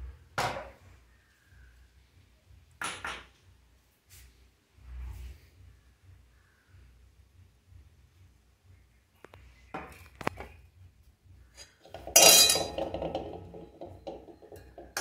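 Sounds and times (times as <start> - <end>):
spoon clinking steel cups: 11.6 - 15.0
loud metal clatter: 11.9 - 13.8.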